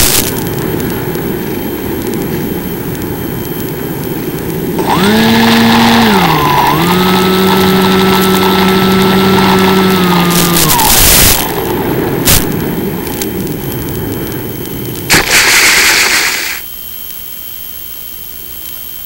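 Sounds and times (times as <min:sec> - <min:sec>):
steady hiss: 0:00.0 - 0:04.8, 0:10.3 - 0:18.9
model plane motor buzzing: 0:04.8 - 0:11.7.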